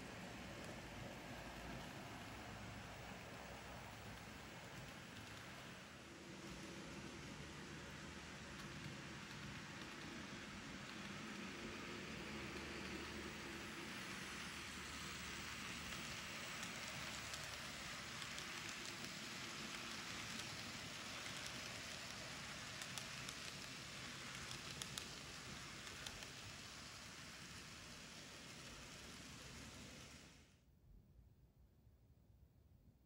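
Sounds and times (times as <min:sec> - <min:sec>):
model train wheels rolling hiss: 0:00.0 - 0:30.6.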